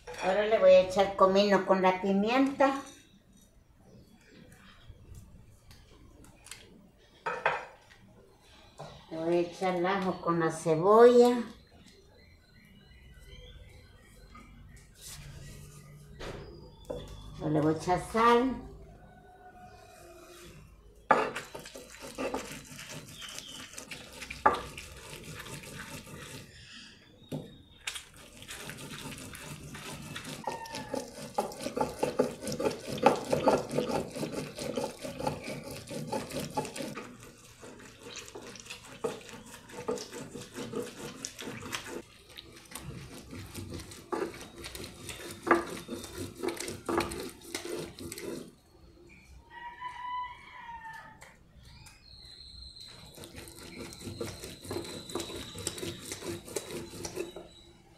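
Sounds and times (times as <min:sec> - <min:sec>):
stone grinding on stone: 0:21.1 - 0:26.6, 0:28.2 - 0:48.6, 0:52.9 - 0:57.6.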